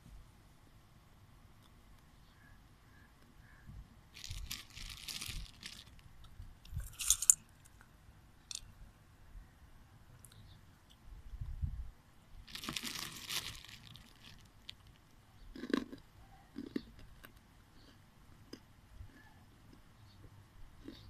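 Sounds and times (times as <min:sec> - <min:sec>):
corn kernels crackling: 0:04.2 - 0:07.5, 0:12.5 - 0:16.0.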